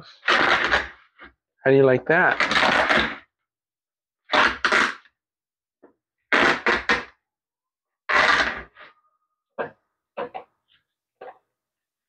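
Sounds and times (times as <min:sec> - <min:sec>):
vinyl upholstery tearing: 0:00.1 - 0:01.3, 0:02.3 - 0:03.4, 0:04.2 - 0:05.2, 0:06.3 - 0:07.2, 0:08.1 - 0:08.8.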